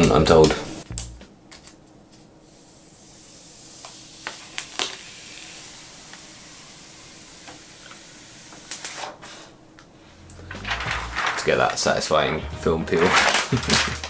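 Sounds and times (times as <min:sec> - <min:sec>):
plastic film peeling crackle: 0:03.7 - 0:06.2, 0:08.6 - 0:09.1.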